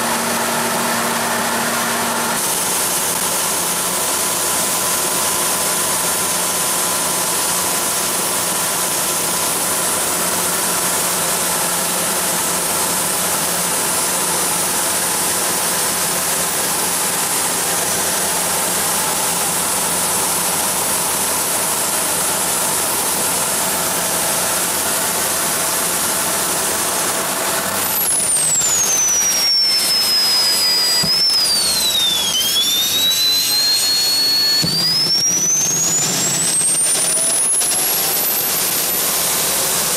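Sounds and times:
high turbine whine: 0:00.0 - 0:39.9
jet engine rushing drone: 0:09.8 - 0:39.9.

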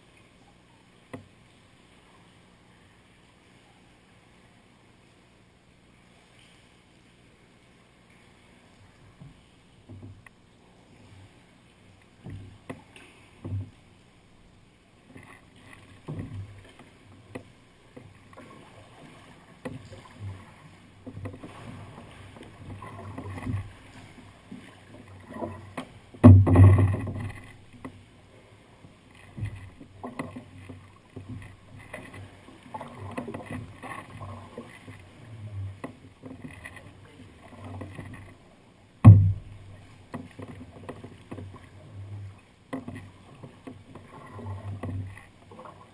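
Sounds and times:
paddle strokes splashing: 0:05.9 - 0:45.9
water slapping against hull: 0:08.1 - 0:14.1, 0:15.0 - 0:45.9
sharp thump: 0:26.2 - 0:27.1, 0:39.0 - 0:39.5.

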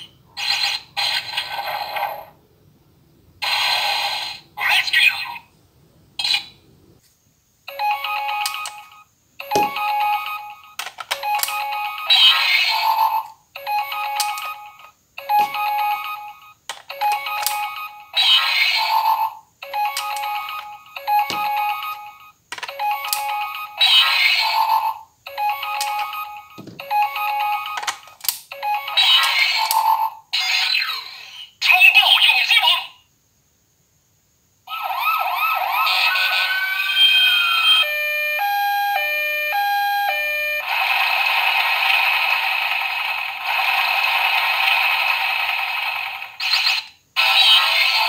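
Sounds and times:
electronic jingle from toy speaker: 0:37.4 - 0:40.7.

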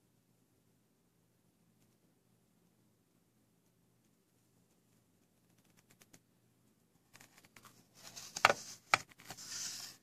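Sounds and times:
scratchy rub: 0:07.2 - 0:10.0
gloved hand rubbing box: 0:08.0 - 0:10.0.

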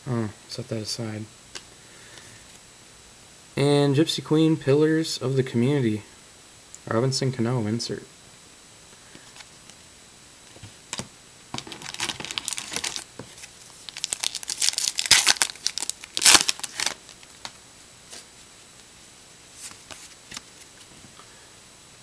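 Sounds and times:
cards rustling: 0:10.6 - 0:18.3, 0:19.6 - 0:20.9
wrapper being torn and crinkled: 0:11.6 - 0:17.6.

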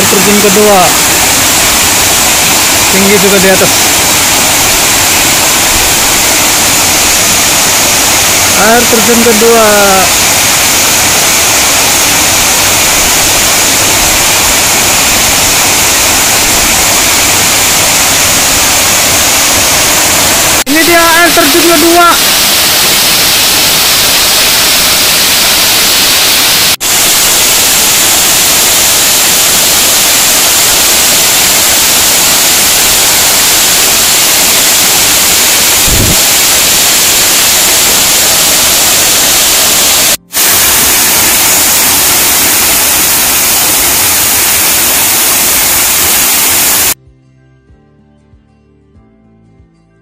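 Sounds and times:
waterfall roaring: 0:00.0 - 0:47.0
soft music: 0:47.0 - 0:50.0.

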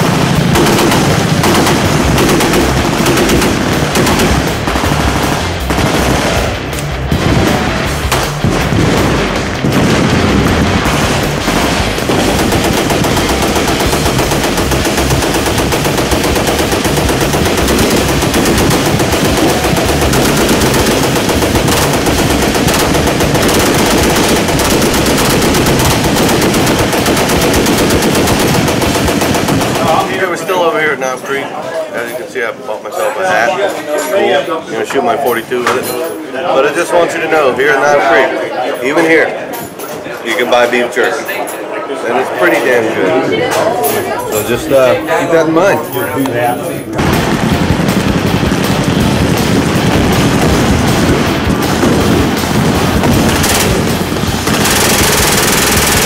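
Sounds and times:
machine guns firing: 0:00.0 - 0:30.7, 0:47.0 - 0:56.0.

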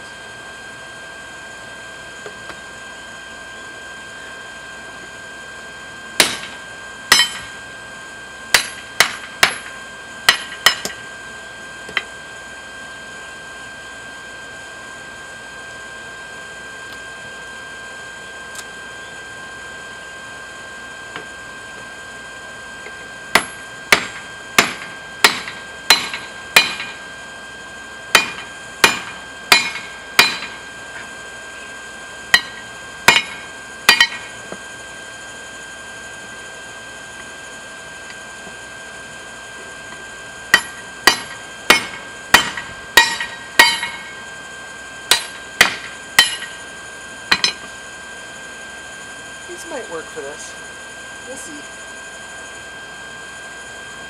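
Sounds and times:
hammer ringing on anvil: 0:06.2 - 0:06.5, 0:07.1 - 0:07.5, 0:08.6 - 0:09.7, 0:10.3 - 0:11.0, 0:23.4 - 0:27.0, 0:28.2 - 0:30.6, 0:32.3 - 0:34.3, 0:40.6 - 0:44.1, 0:45.1 - 0:46.6, 0:47.3 - 0:47.7.

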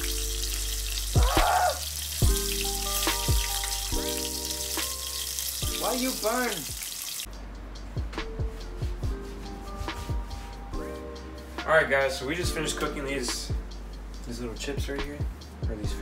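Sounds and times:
background music with a beat: 0:00.0 - 0:06.1, 0:07.3 - 0:16.0
fish sizzling in hot oil: 0:00.0 - 0:07.3.

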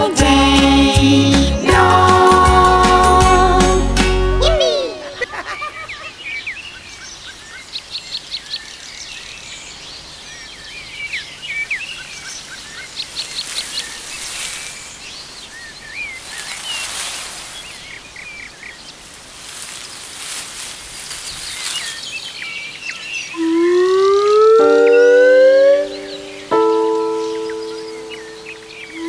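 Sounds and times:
music: 0:00.0 - 0:05.1, 0:24.6 - 0:29.0
small birds chirping: 0:04.8 - 0:29.0
soft steady hiss: 0:05.1 - 0:24.9.

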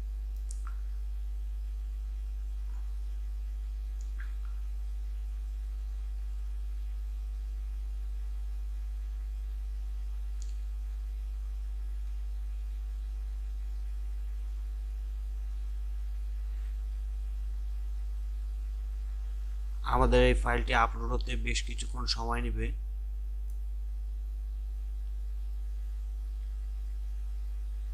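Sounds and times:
electrical mains hum: 0:00.0 - 0:27.9
faint click: 0:00.4 - 0:00.8, 0:10.4 - 0:10.7.

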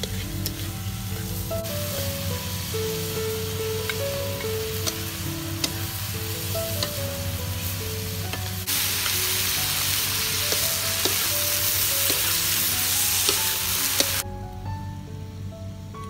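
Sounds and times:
wooden spatula scraping a pan: 0:00.0 - 0:01.8
food sizzling in a wok: 0:00.0 - 0:14.2.

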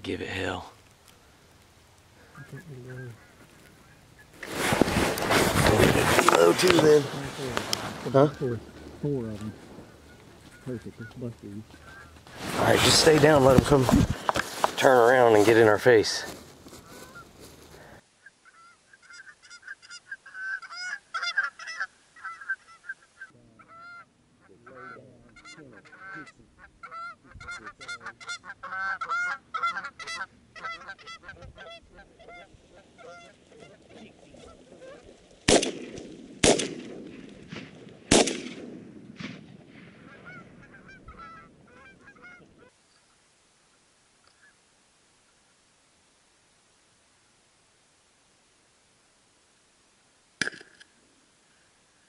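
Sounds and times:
geese honking: 0:02.2 - 0:35.2, 0:40.0 - 0:42.8
echoing shotgun shots: 0:35.4 - 0:40.6.

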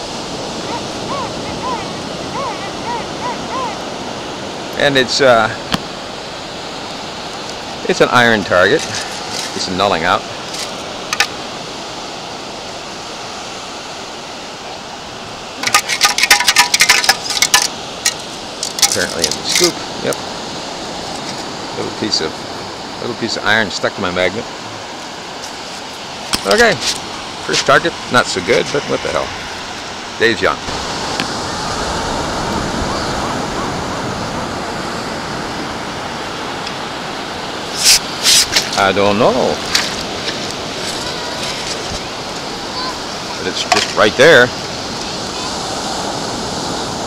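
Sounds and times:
surf: 0:00.0 - 0:47.0
wind: 0:00.0 - 0:47.0
metal scoop rattling with pebbles: 0:15.6 - 0:19.6.

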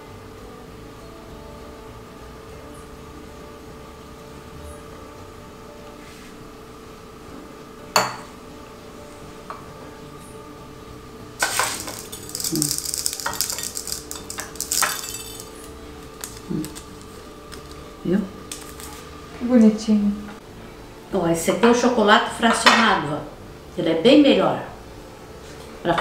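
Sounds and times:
sprinkles rattling and crackling: 0:11.4 - 0:19.1.

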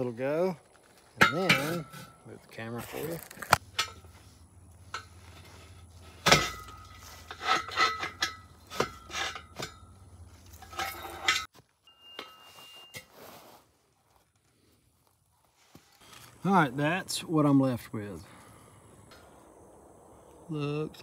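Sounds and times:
metal tubing clanking against pipe: 0:01.2 - 0:02.1, 0:06.2 - 0:11.5.

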